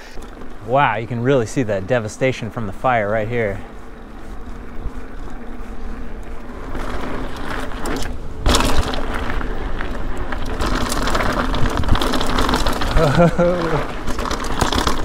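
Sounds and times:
bike rattling and clicking: 0:00.0 - 0:15.0
tyres rolling on dirt: 0:00.0 - 0:15.0
wind on camera: 0:03.7 - 0:15.0.

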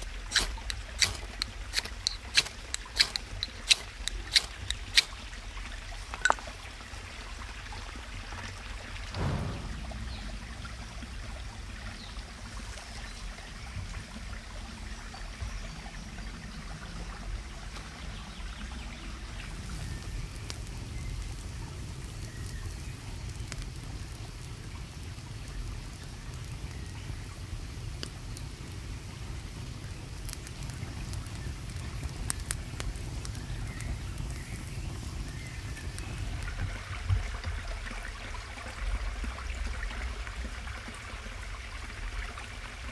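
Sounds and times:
knife scraping ferrocerium rod: 0:00.0 - 0:05.2
wood fire crackling: 0:00.0 - 0:06.7, 0:19.2 - 0:38.1
running water: 0:00.0 - 0:42.9
soft thump: 0:09.2 - 0:10.3.

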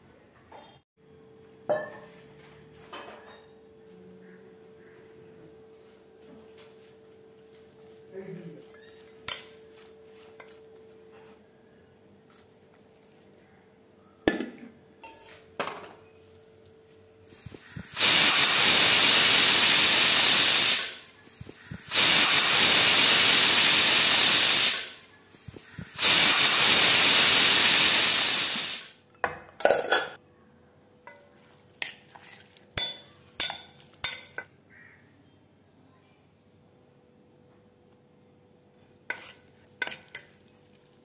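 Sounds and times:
pressure cooker steam whistling: 0:17.5 - 0:29.0.

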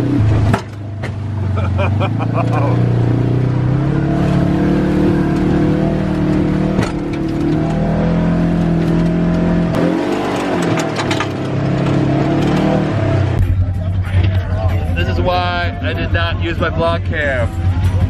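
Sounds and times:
dune buggy engine running under load: 0:00.0 - 0:18.0
knocks and rattles: 0:08.5 - 0:12.8.

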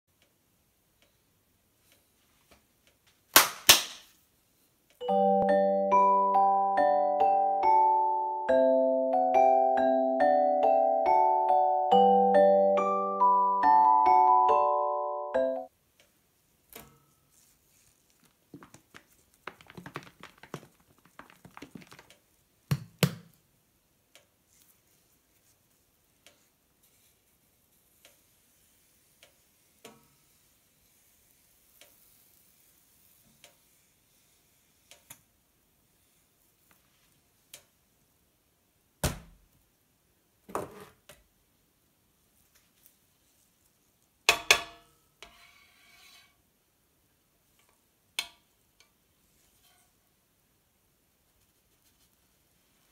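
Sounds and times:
mallet instrument tune: 0:05.0 - 0:15.7
plastic squeeze bottle shaken: 0:18.1 - 0:22.2.

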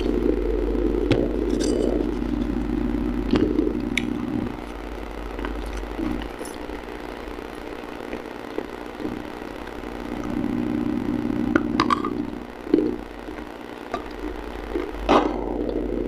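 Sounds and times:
steady low hum: 0:00.0 - 0:16.0
crunching and chewing: 0:03.3 - 0:06.8, 0:07.4 - 0:09.8, 0:12.7 - 0:15.8.

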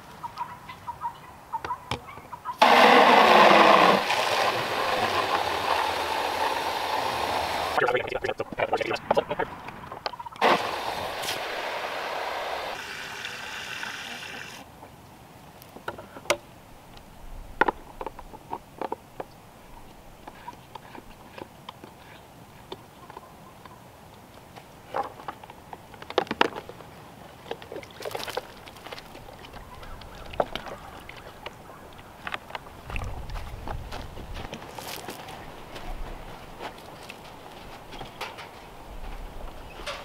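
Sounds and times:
water rushing into plastic tank: 0:02.6 - 0:07.8, 0:10.4 - 0:14.6.

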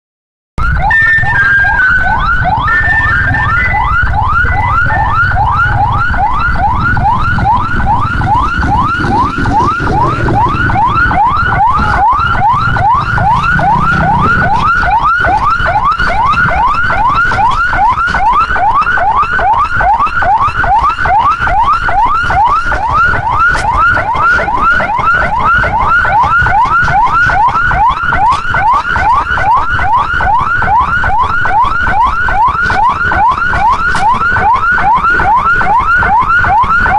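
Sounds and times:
siren fast yelp: 0:00.6 - 0:36.9
low rumble: 0:02.0 - 0:17.0.

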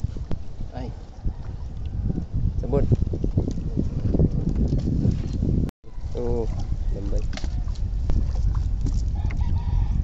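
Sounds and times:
water slapping against hull: 0:06.3 - 0:09.5.

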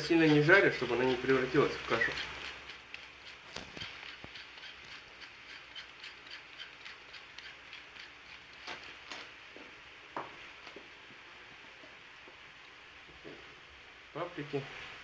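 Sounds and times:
sharp clicks: 0:01.8 - 0:09.2.

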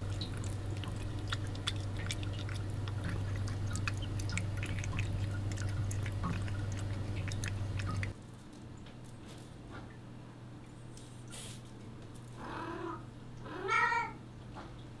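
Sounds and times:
cat chewing and licking: 0:00.0 - 0:08.2
steady low hum: 0:00.0 - 0:13.6.

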